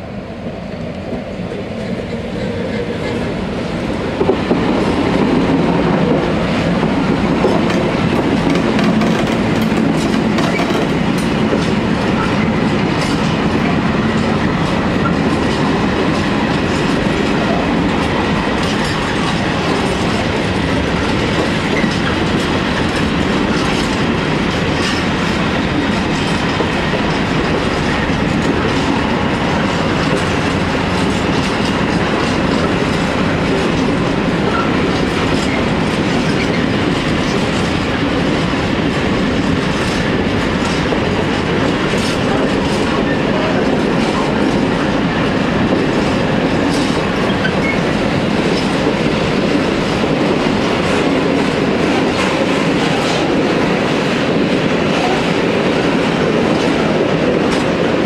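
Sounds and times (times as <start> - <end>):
electric locomotive passing: 0.0 - 58.0
wheels clacking over rail joints: 6.6 - 56.8
rolling rumble of wagons: 7.5 - 15.6.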